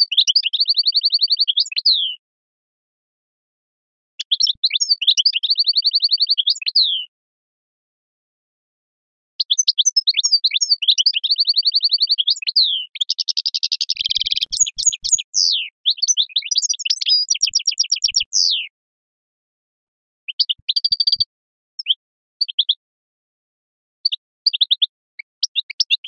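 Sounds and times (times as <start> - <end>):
bird trills and twittering: 0.0 - 2.1, 4.2 - 7.0, 9.4 - 18.7.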